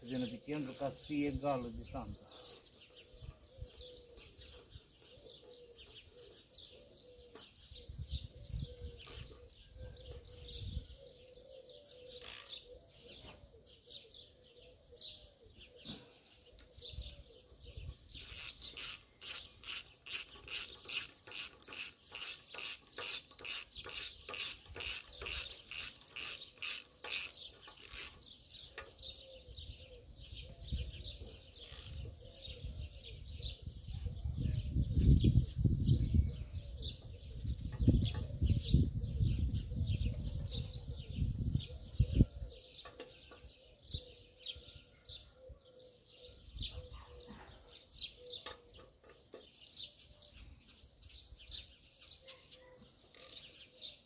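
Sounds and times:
birds chirping: 0.0 - 54.0
hand tool scraping: 18.2 - 28.2.

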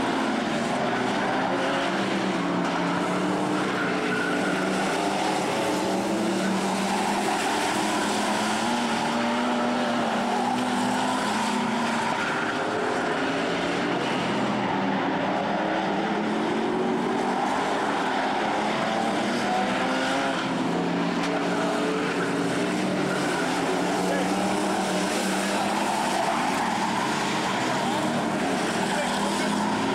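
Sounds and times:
race car engines drone: 0.0 - 29.9.

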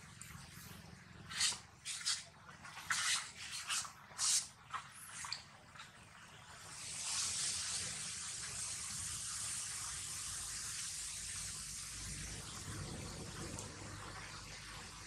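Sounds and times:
outdoor background hiss: 6.1 - 15.0.

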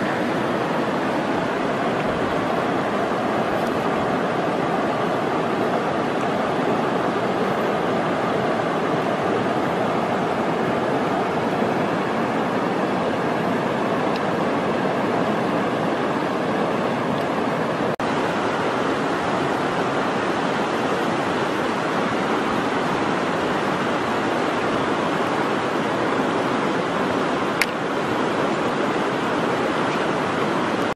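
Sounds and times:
steady rushing noise: 0.0 - 30.9
sharp click: 27.6 - 27.8.

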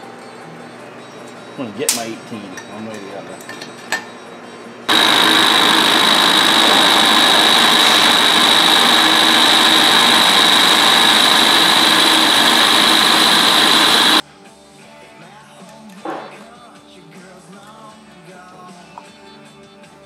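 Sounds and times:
metal lathe running: 4.9 - 14.2
piercing high whine: 4.9 - 14.2.

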